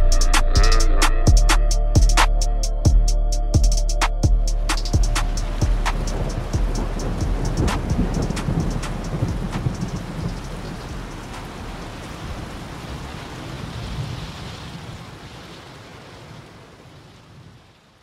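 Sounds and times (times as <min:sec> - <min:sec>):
hip-hop track outro: 0:00.0 - 0:11.5
low rumble: 0:00.0 - 0:12.2
steady hiss: 0:04.6 - 0:12.4.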